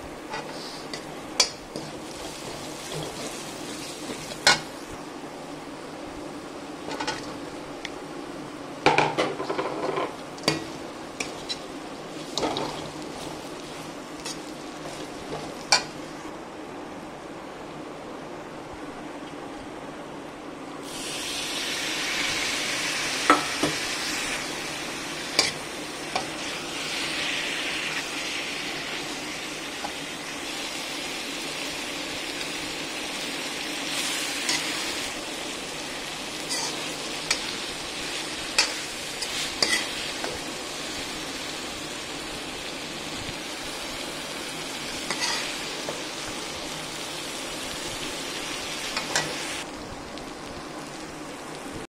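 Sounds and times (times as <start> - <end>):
vegetables sizzling in oil: 0.0 - 16.4, 20.8 - 51.9
metal spoon scraping a wok: 11.2 - 11.7, 36.5 - 37.5, 38.6 - 40.0, 45.1 - 45.6.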